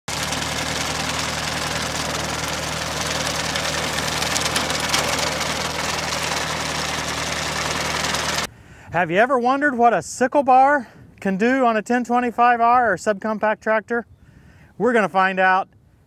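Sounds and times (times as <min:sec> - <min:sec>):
sickle bar mower rattling: 0:00.0 - 0:08.5
tractor diesel engine running: 0:00.0 - 0:08.5.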